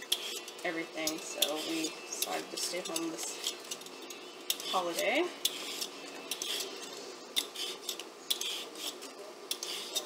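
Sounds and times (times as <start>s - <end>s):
vegetable peeler scraping potato: 0.0s - 0.5s, 4.5s - 6.8s, 7.4s - 10.0s.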